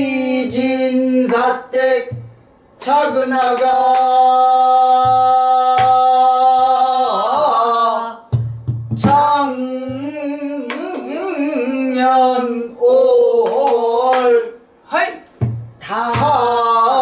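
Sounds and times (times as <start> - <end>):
barrel drum thumps: 2.1 - 2.5, 8.3 - 10.1, 15.4 - 16.4.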